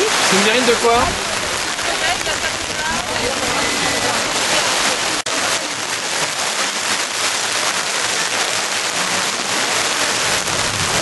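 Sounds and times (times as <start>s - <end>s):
rain falling: 0.0s - 11.0s.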